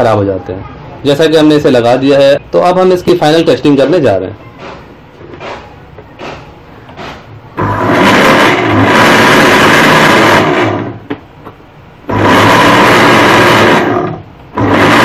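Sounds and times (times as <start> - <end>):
blender motor running: 7.6 - 11.0, 12.1 - 15.0.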